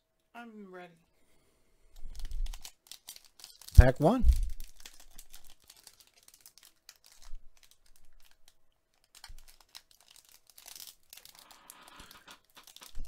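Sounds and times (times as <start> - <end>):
foil wrapper crinkling: 2.0 - 13.0.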